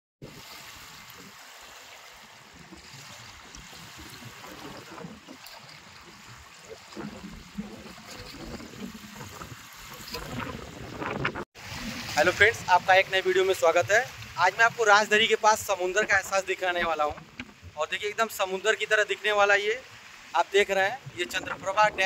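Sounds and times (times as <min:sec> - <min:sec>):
small waves lapping on shore: 0:00.2 - 0:22.0.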